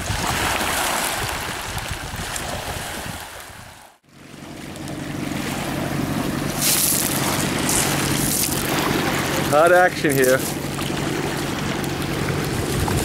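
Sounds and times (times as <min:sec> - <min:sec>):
wind on microphone: 0:00.0 - 0:04.0, 0:10.5 - 0:13.0
small waves lapping on pebbles: 0:00.0 - 0:13.0
motorboat engine droning: 0:04.0 - 0:13.0.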